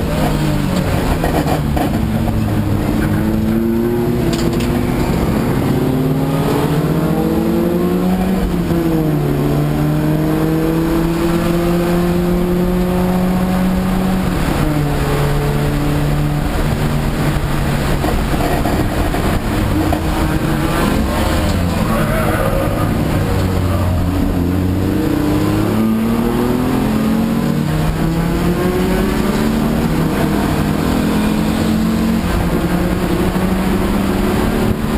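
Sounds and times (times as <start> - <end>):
race car engine under load: 0.0 - 34.9
road noise: 0.0 - 34.9
wind noise: 12.3 - 34.9.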